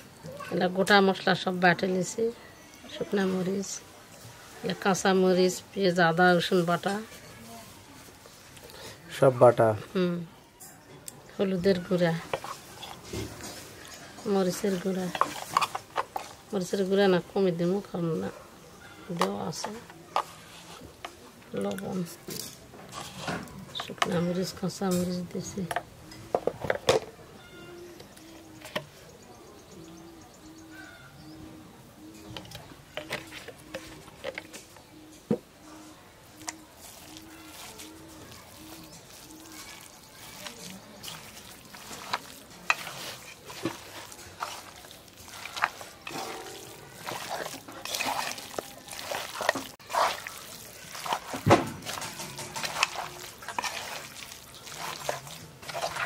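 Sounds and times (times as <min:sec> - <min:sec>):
dove cooing: 0:27.4 - 0:28.9, 0:29.8 - 0:41.2
wet squelching of meat mixing: 0:36.2 - 0:56.0.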